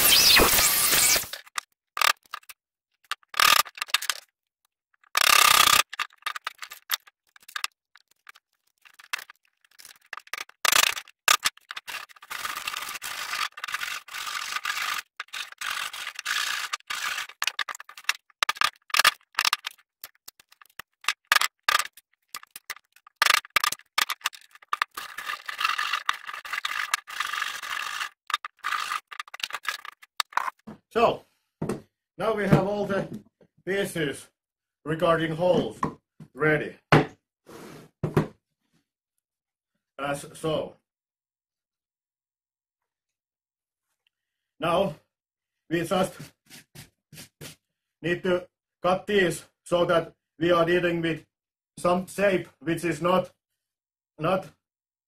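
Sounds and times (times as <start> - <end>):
hand tool scraping wood: 5.0 - 30.6.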